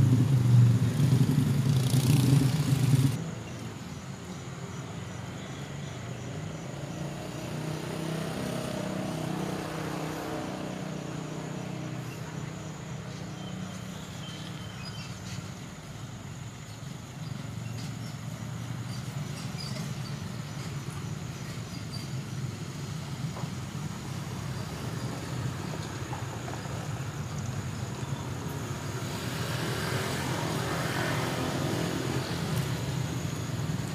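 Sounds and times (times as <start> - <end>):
vehicle passing close: 0.0 - 3.2, 28.8 - 33.9
car and motorcycle engines: 0.0 - 33.9.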